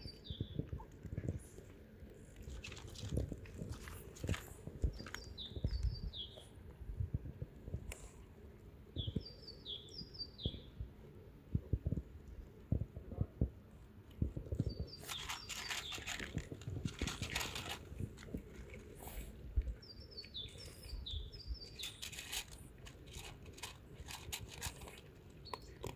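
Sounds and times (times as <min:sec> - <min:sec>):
small birds chirping: 0:00.0 - 0:06.7, 0:08.9 - 0:10.9, 0:14.2 - 0:25.9
cats crunching dry kibble: 0:00.6 - 0:06.4, 0:14.0 - 0:25.9.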